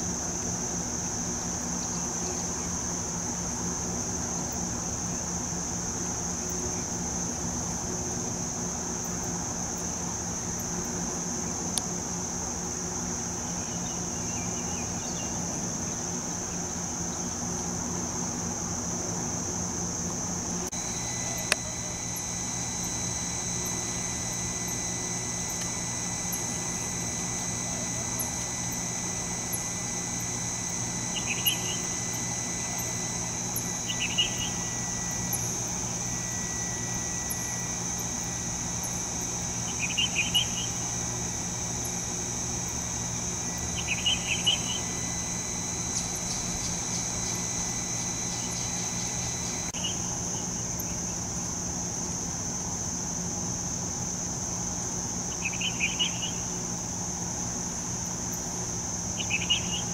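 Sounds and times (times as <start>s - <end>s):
low steady hum: 0.0s - 51.6s
insects trilling: 0.0s - 59.9s.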